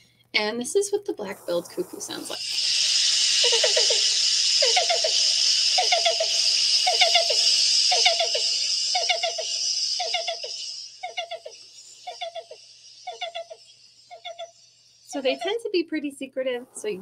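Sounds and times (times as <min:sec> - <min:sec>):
steady high hiss: 0:01.0 - 0:15.8
cuckoo calling: 0:02.2 - 0:15.5.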